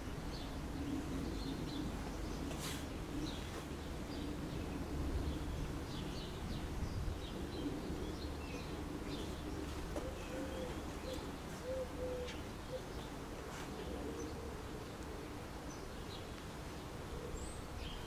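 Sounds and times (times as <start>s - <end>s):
small birds chirping: 0.0s - 18.0s
pigeon cooing: 7.6s - 15.5s.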